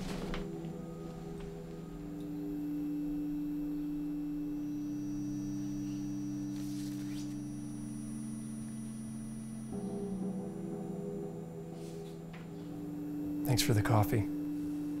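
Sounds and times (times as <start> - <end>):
paper rustle: 0.0 - 0.5
soft film score held tones: 0.0 - 15.0.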